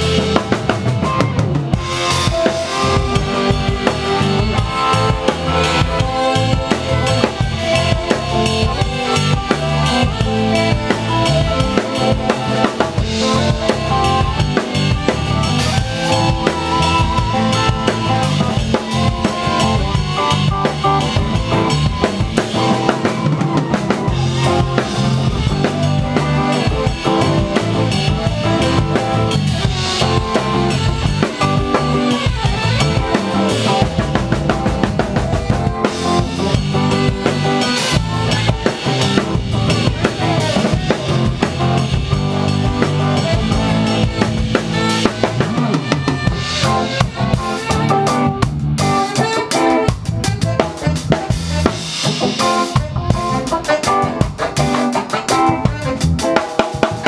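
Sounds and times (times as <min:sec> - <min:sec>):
drum kit: 0:00.0 - 0:57.0
live reggae band: 0:00.0 - 0:57.0.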